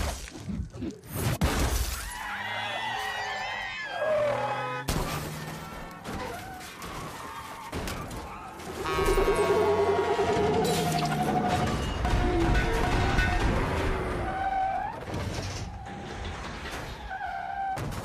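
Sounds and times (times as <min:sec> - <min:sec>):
people screaming: 0:02.0 - 0:04.9.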